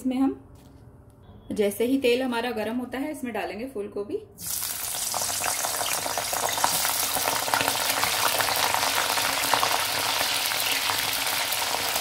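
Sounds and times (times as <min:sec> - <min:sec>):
food deep-frying in oil: 0:04.4 - 0:12.0.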